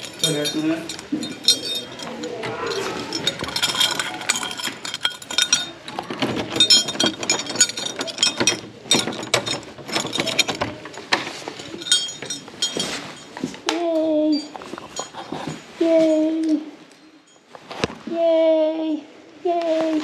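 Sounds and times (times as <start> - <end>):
keys jangling in a door lock: 0.0 - 13.5, 14.3 - 15.6.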